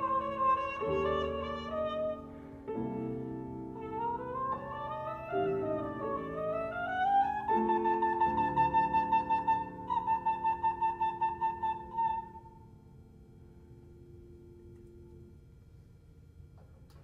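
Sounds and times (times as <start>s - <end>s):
trumpet playing: 0.0s - 2.4s, 3.0s - 12.6s
piano chords: 0.0s - 15.6s.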